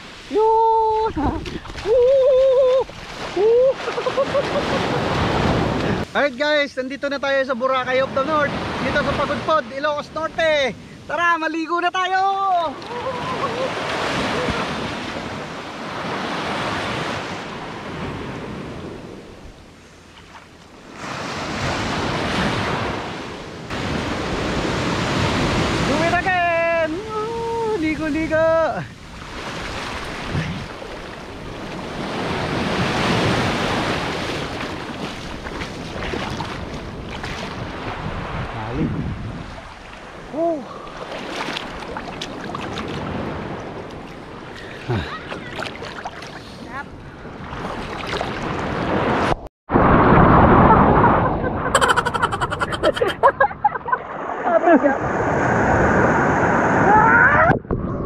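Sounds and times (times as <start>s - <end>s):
water splashing: 0.0s - 6.1s, 29.0s - 38.7s, 39.4s - 48.8s
surf washing up beach: 0.0s - 57.4s
person exclaiming: 0.3s - 3.8s, 12.2s - 14.7s, 26.5s - 27.9s, 40.3s - 40.7s.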